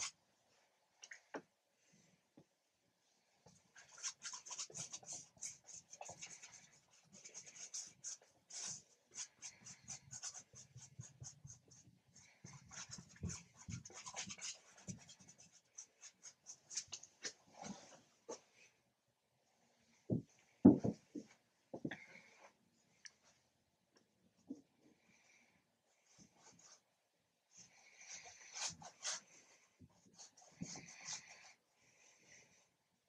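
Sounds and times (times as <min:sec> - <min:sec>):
paintbrush scratching on canvas: 0:03.8 - 0:18.4, 0:27.6 - 0:31.6.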